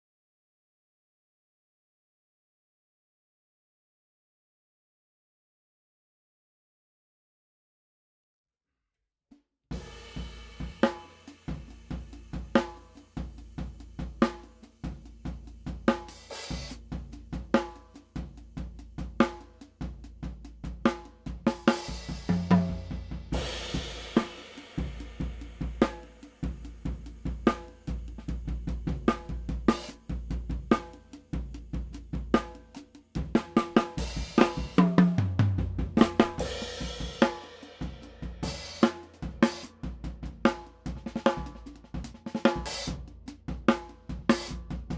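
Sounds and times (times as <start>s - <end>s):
drum kit groove: 9.7s - 44.9s.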